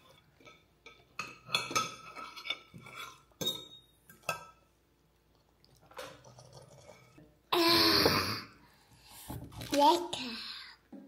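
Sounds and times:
cutlery clinking against plates: 0:00.2 - 0:04.7.

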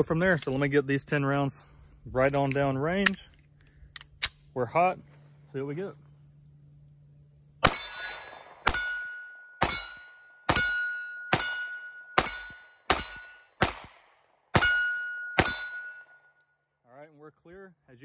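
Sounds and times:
pistol shots: 0:07.6 - 0:16.1
steel plate ringing: 0:07.7 - 0:13.6, 0:14.6 - 0:16.4.

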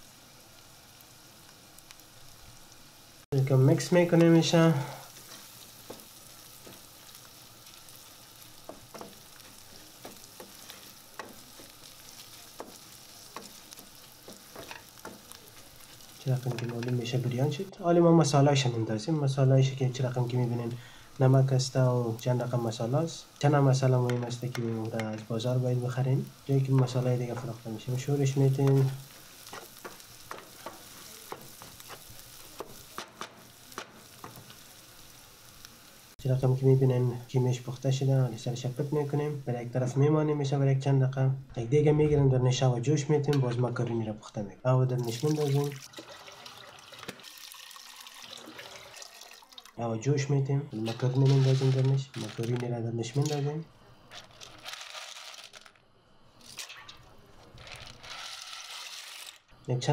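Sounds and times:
meat sizzling in a pan: 0:00.0 - 0:40.3, 0:44.8 - 0:49.8, 0:50.7 - 0:52.6
wooden spoon scraping a pan: 0:05.1 - 0:17.2, 0:23.8 - 0:34.7, 0:50.8 - 0:52.6.

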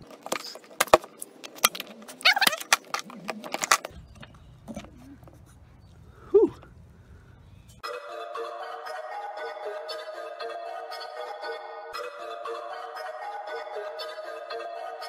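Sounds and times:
rubber cap squeak: 0:02.2 - 0:05.4.

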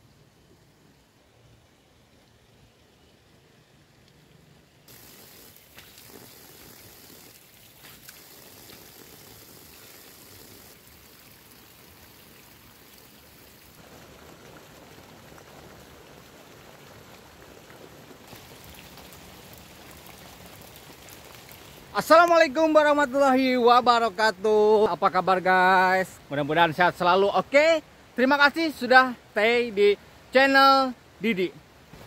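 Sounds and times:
water splashing onto soil: 0:04.9 - 0:22.6.

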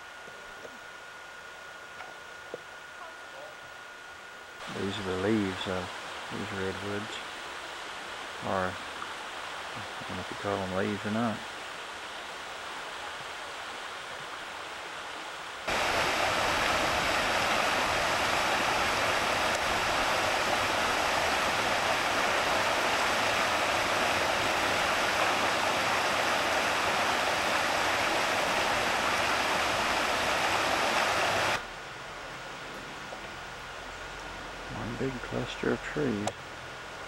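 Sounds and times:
creek flowing over stones: 0:04.6 - 0:31.6.

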